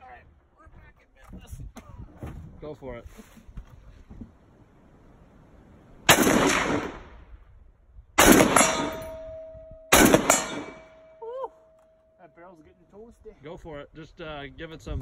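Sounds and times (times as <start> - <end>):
gunfire echo: 6.1 - 7.2, 8.2 - 11.2.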